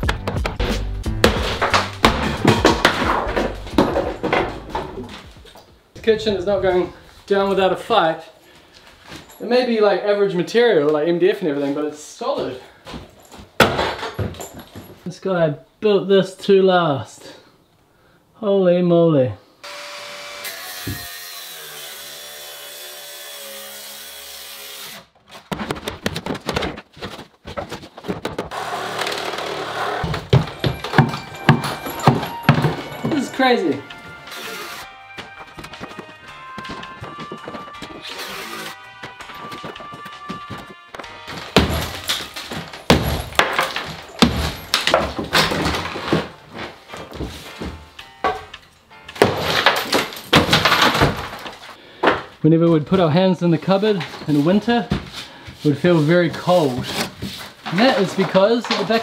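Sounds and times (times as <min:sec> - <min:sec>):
wooden panels cracking: 0:01.2 - 0:05.2, 0:41.0 - 0:47.2, 0:48.3 - 0:52.2
pieces clattering down: 0:01.4 - 0:05.1, 0:41.2 - 0:46.4, 0:49.2 - 0:51.8
angle grinder cutting wood: 0:19.6 - 0:25.1, 0:28.5 - 0:30.4, 0:34.2 - 0:35.0, 0:37.0 - 0:38.9
hammer banging on cabinet: 0:41.6 - 0:42.0, 0:42.9 - 0:45.8.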